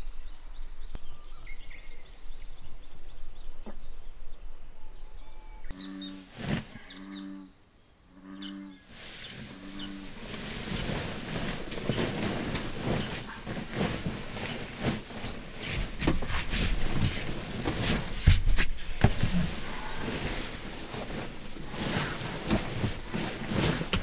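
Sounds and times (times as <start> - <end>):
bullfrog croaking: 5.7 - 8.9
sleeping bag rustling: 5.8 - 7.0, 8.9 - 24.0
knocks and thump: 15.7 - 19.4.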